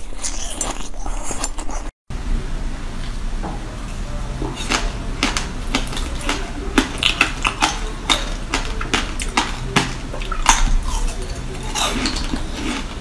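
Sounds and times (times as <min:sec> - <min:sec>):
ice crunching being chewed: 0:00.0 - 0:01.9, 0:04.6 - 0:13.0.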